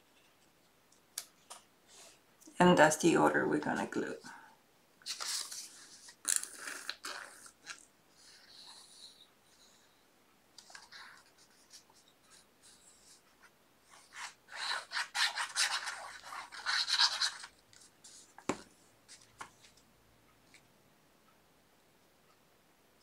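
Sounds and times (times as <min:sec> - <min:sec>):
paper rubbing and rustling: 0:05.0 - 0:06.2, 0:13.9 - 0:19.8.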